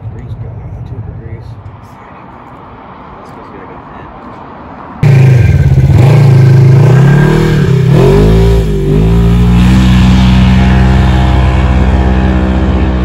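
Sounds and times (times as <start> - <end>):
dirt bike engine revving: 5.0 - 13.0.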